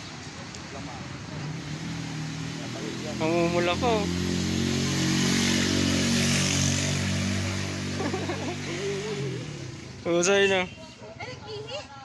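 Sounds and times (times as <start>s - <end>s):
small engine running: 8.0s - 9.8s.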